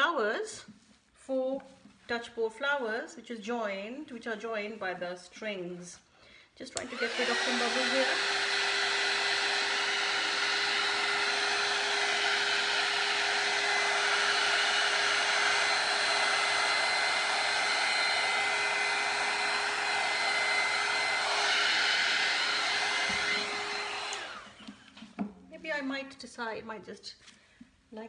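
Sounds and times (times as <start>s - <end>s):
heat gun blowing whir: 6.8s - 25.1s.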